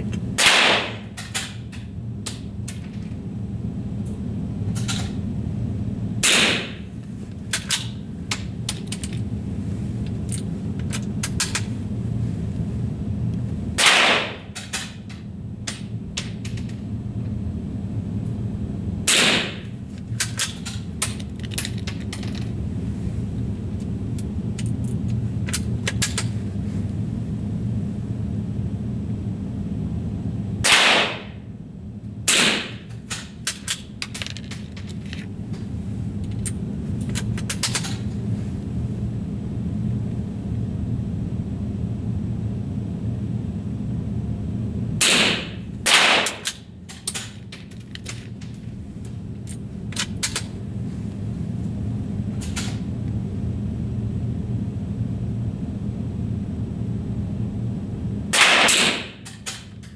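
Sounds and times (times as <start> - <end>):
steady low hum: 0.0 - 59.9
rifle shots: 0.4 - 1.0, 13.8 - 14.4, 30.7 - 31.2, 45.0 - 46.4, 58.4 - 59.2.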